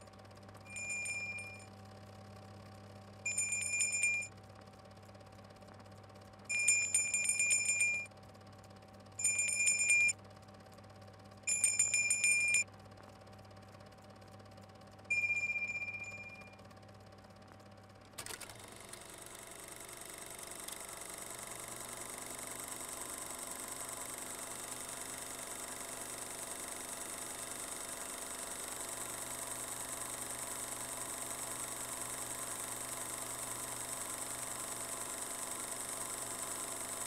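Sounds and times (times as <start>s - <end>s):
bell ringing in rapid strikes: 0.7s - 1.7s, 3.3s - 4.3s, 6.5s - 8.1s, 9.2s - 10.1s, 11.5s - 12.6s, 15.1s - 16.6s.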